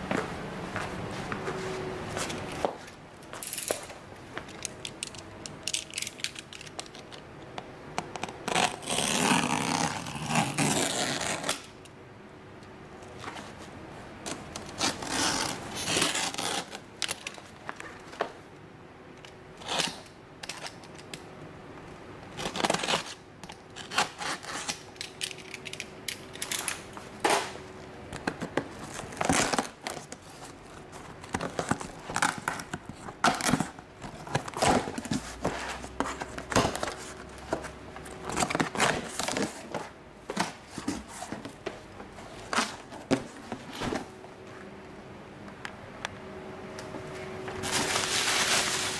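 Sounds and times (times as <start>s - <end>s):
knife slitting packing tape: 8.2s - 11.8s, 14.6s - 17.3s, 19.6s - 21.2s, 22.4s - 27.5s
tape tearing: 8.2s - 11.8s, 14.3s - 17.5s, 19.6s - 21.2s, 22.3s - 25.8s, 47.6s - 48.9s.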